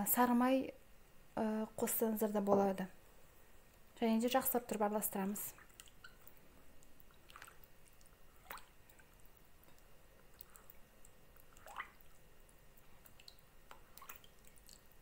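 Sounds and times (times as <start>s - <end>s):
spatula stirring liquid: 4.6s - 15.0s.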